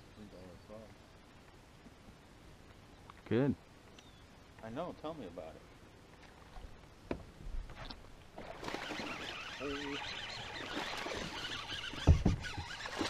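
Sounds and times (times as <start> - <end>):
fish thrashing and splashing water: 8.4 - 13.0.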